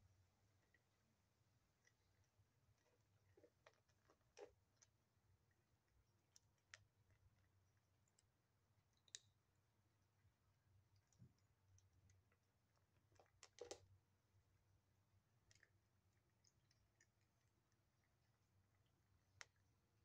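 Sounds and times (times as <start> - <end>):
faint low hum: 0.0 - 20.0
kitten crunching kibble: 0.4 - 20.0.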